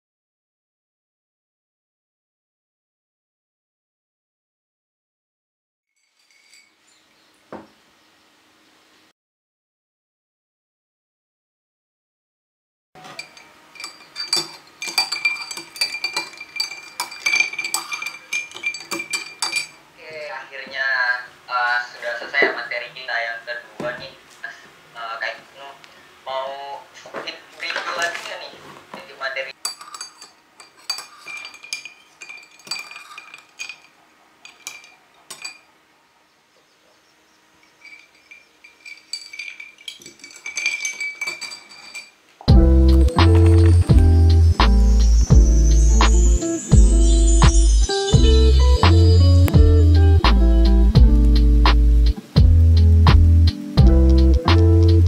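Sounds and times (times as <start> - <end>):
metal spoon clinking in glass with ice: 6.0 - 7.2, 13.0 - 19.8, 29.6 - 35.7, 37.6 - 42.3, 42.9 - 43.9
glass ringing: 6.0 - 7.7, 13.0 - 19.9, 29.6 - 35.8, 37.6 - 42.2, 42.8 - 49.6.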